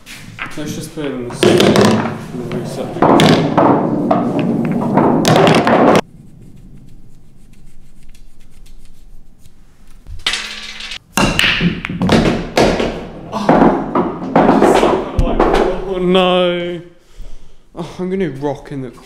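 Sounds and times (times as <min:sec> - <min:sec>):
pool balls tapping and knocking: 0:00.3 - 0:06.0, 0:10.1 - 0:16.1
rubbing noise: 0:05.8 - 0:10.1
chalk scraping cue tip: 0:06.1 - 0:09.6.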